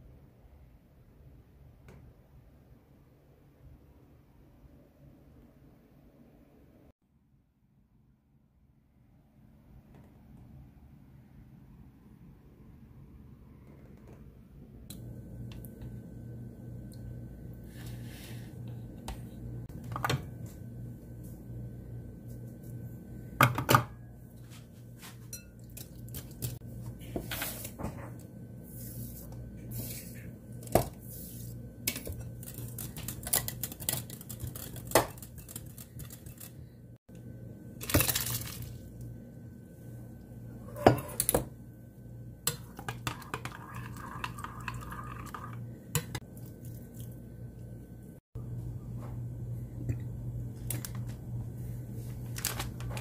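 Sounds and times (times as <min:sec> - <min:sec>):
steady low hum: 0:24.0 - 0:53.0
whisk clinking in glass bowl: 0:25.3 - 0:25.9.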